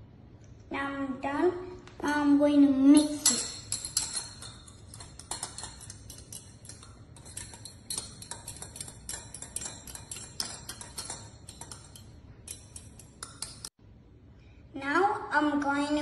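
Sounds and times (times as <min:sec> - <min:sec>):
metal spoon clinking in cup: 0:03.0 - 0:13.7.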